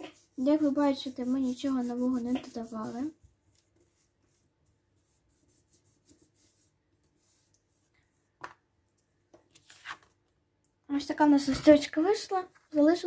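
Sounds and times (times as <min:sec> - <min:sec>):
eraser rubbing on paper: 0:00.0 - 0:07.8
paper rustle: 0:09.4 - 0:10.2.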